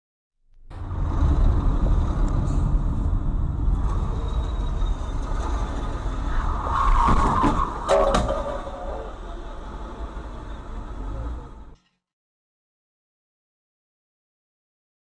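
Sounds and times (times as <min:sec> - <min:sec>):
car engine and road noise: 0:00.5 - 0:11.8
loud rough noise: 0:00.7 - 0:11.8.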